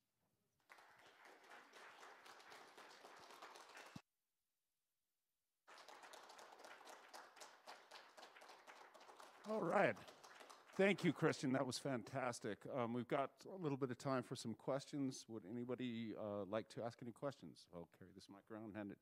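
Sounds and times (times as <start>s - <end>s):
audience applauding: 0.6s - 4.0s, 5.7s - 11.6s.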